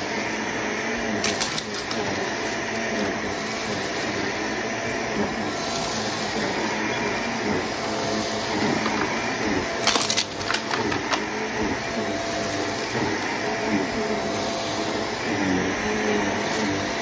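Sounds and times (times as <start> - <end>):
vacuum cleaner running: 0.0 - 17.0
debris crackling in vacuum: 1.1 - 4.4, 8.1 - 13.5.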